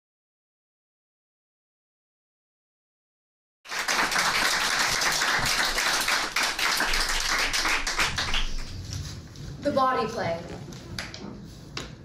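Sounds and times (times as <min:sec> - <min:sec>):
audience applause: 0:03.7 - 0:08.8.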